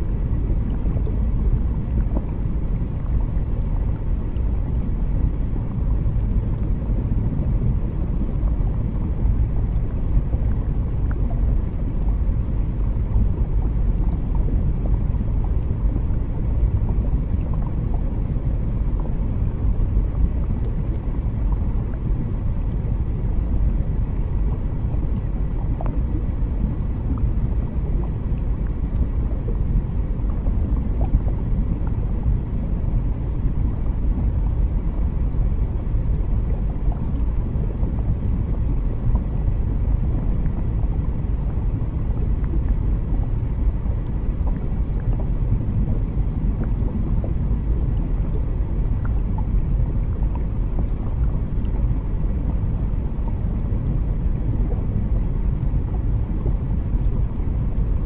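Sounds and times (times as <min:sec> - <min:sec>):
low underwater rumble: 0:00.0 - 0:58.0.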